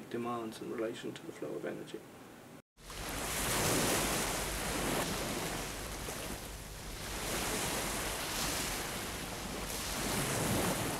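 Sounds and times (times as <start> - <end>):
wind: 0.0 - 10.9
sea waves rushing: 2.8 - 10.9.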